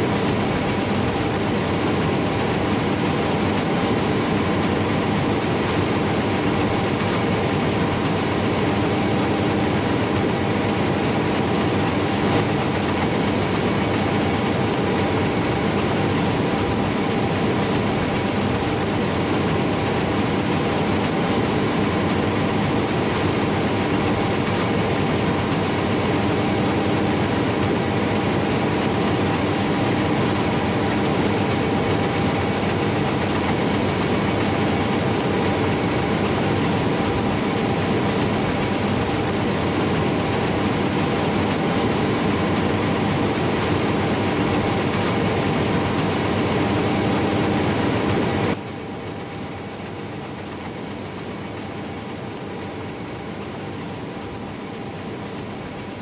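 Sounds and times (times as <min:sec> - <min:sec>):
combine harvester running: 0:00.0 - 0:56.0.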